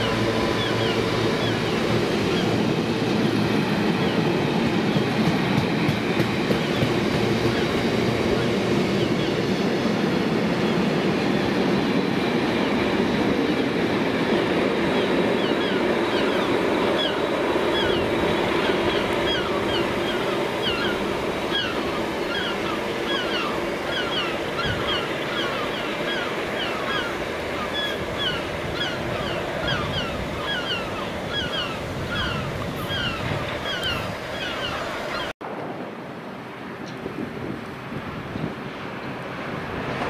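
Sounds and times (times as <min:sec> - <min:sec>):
birds chirping: 0:00.0 - 0:05.3, 0:14.9 - 0:35.4
freight train rumbling past: 0:00.0 - 0:40.0.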